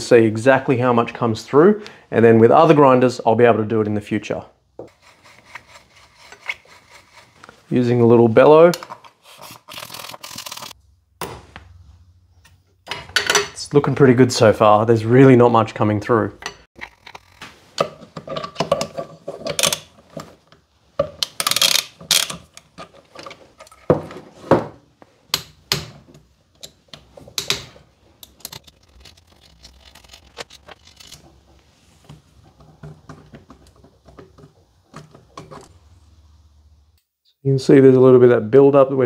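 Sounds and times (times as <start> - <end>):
metal grinder parts clicking and rattling: 16.4 - 20.0, 21.3 - 23.9, 28.2 - 31.2.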